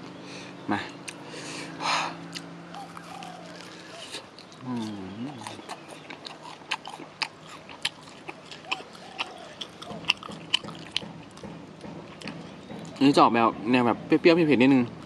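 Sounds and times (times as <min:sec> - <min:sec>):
humming through full mouth: 0:00.2 - 0:06.2
wet chewing and lip smacking: 0:02.2 - 0:13.0.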